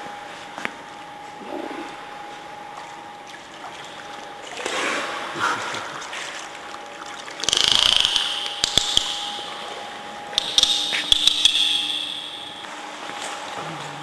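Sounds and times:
faint steady hum: 0:00.0 - 0:14.0
pool water lapping and splashing: 0:00.1 - 0:14.0
sharp clicks: 0:07.4 - 0:09.6, 0:10.4 - 0:12.7.

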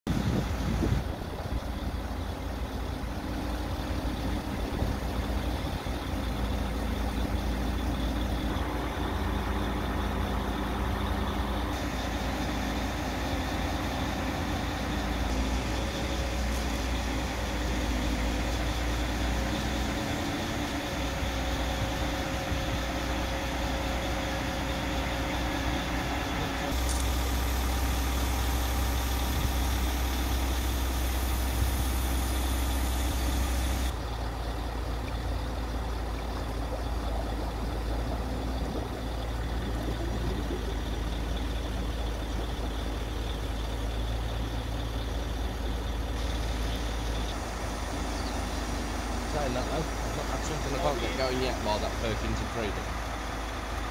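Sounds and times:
diesel engine rumbling: 0:00.0 - 0:53.9.

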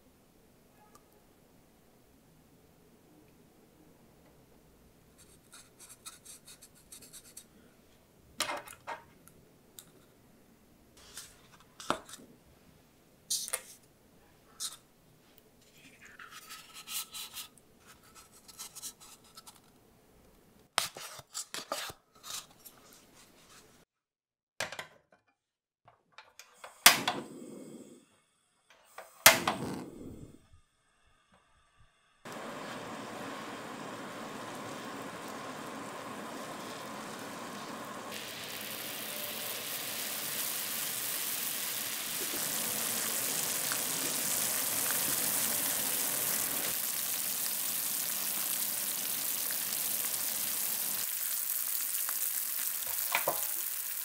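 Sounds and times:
flame catching rush: 0:29.2 - 0:30.3, 0:32.3 - 0:52.9.

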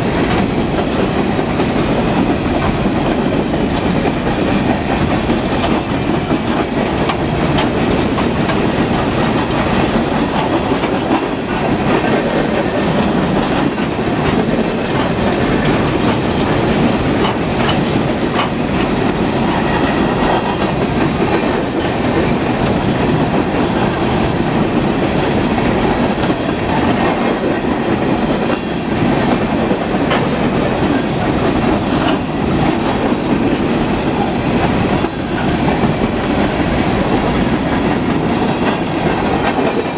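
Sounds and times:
steel wheels rumbling on rail: 0:00.0 - 0:39.9.

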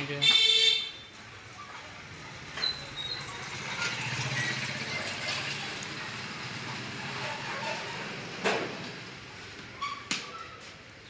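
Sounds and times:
small motorcycle passing: 0:02.0 - 0:08.4.

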